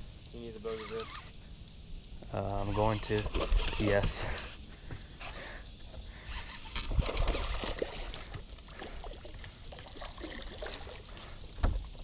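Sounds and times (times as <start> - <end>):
water trickling: 6.7 - 12.0
fish splashing in water: 6.9 - 11.4.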